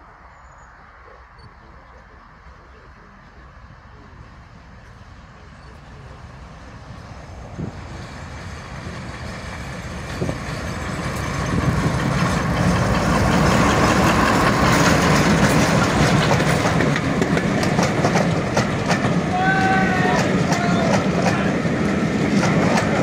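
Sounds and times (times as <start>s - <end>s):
diesel locomotive engine passing: 0.0s - 23.0s
wheels clacking over rail joints: 7.6s - 23.0s.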